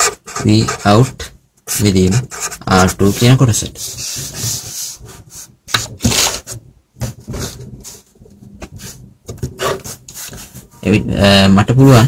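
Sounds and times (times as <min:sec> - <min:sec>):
marker rubbing on paper: 0:00.0 - 0:06.6, 0:08.7 - 0:09.0, 0:09.6 - 0:10.7.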